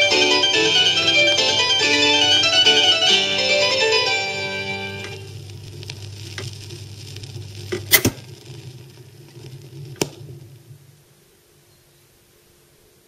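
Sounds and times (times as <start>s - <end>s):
record crackling surface noise: 0.0s - 13.0s
low hum: 4.2s - 11.6s
loud clicks: 7.6s - 8.3s.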